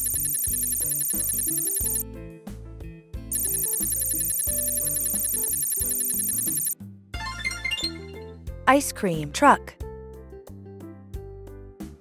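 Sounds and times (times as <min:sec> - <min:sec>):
cartoon background music: 0:00.0 - 0:02.0, 0:03.3 - 0:09.9.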